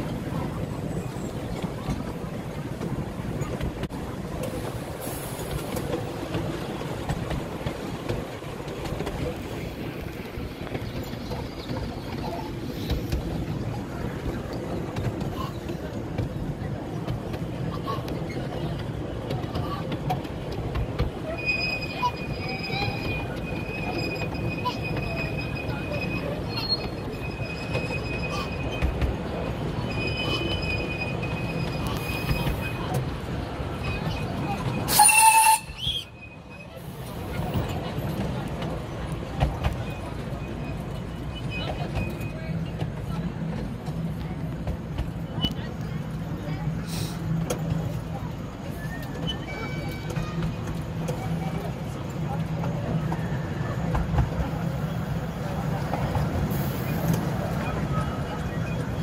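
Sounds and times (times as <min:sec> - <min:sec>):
rail clicks: 0:00.0 - 0:59.0
train wheels rumbling on rails: 0:00.0 - 0:59.0
high-pitched wheel squeal: 0:29.8 - 0:32.9.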